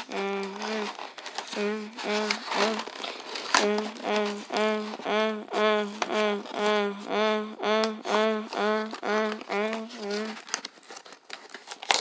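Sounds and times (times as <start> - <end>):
person chanting one syllable: 0.0 - 2.9, 3.6 - 10.4
plastic packaging clicks: 9.3 - 12.0.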